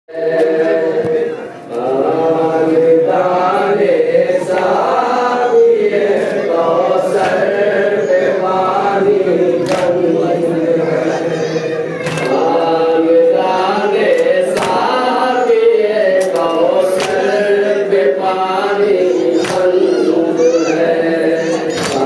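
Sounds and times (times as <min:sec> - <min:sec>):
men chanting a lament: 0:00.1 - 0:22.0.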